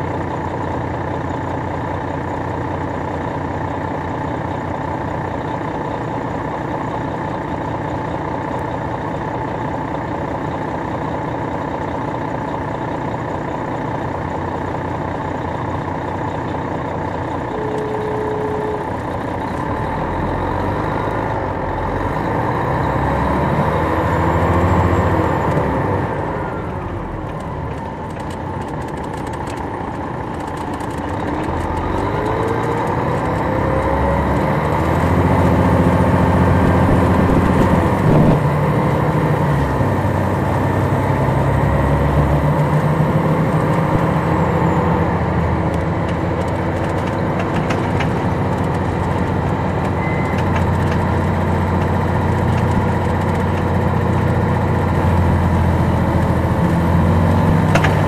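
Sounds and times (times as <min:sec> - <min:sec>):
diesel bus engine running: 0:00.0 - 0:58.0
road noise: 0:00.0 - 0:58.0.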